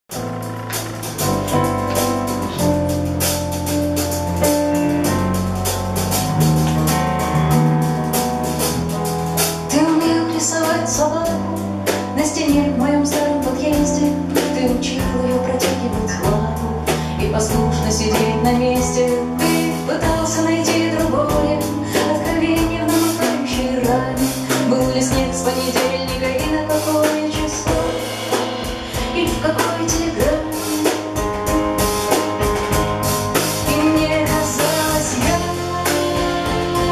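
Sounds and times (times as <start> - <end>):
live band playing: 0.1 - 36.9
steady drum beat: 0.1 - 36.9
woman singing: 9.7 - 28.2, 28.9 - 31.6, 33.6 - 36.9.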